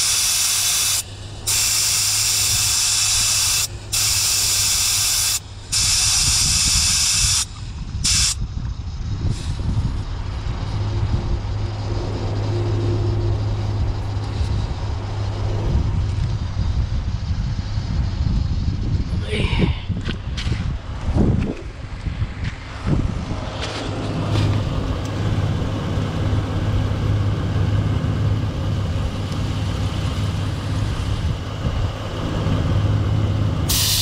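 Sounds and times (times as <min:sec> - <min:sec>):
air hissing out of tyre: 0:00.0 - 0:10.9, 0:33.6 - 0:34.0
low rumbling noise: 0:01.0 - 0:33.7.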